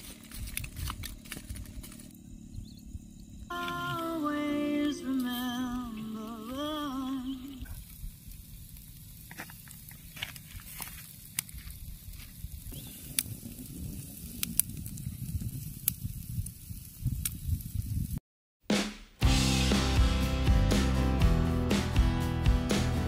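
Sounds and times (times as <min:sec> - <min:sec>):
charcoal crackling and popping: 0:00.0 - 0:02.2, 0:05.1 - 0:18.2
meat sizzling on charcoal: 0:04.7 - 0:18.2.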